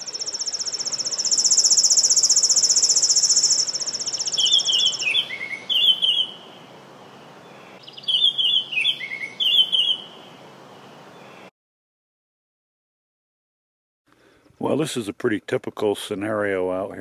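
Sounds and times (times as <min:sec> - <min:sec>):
buzzing insect trill: 0:00.0 - 0:04.8
faint outdoor hiss: 0:00.0 - 0:11.5, 0:14.1 - 0:17.0
songbird singing: 0:00.0 - 0:11.5.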